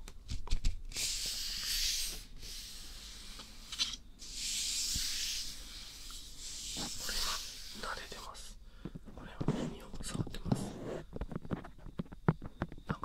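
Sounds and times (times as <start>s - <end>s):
breathy hisses close to microphone: 0.9s - 8.6s.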